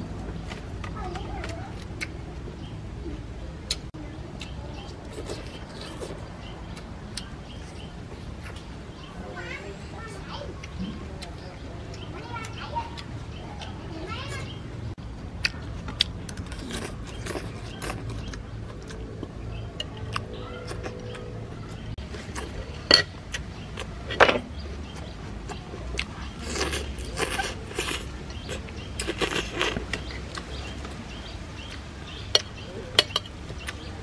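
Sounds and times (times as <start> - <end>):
chewing and slurping: 4.4 - 9.4, 15.4 - 33.9.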